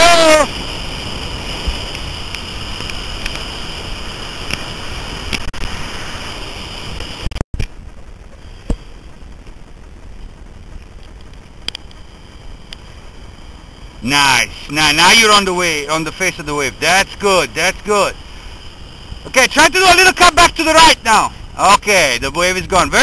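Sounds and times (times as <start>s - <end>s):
breaking whitewater rushing: 0.0s - 7.3s, 9.8s - 23.0s
wind on microphone: 0.0s - 15.6s
faint clicks: 10.2s - 12.9s.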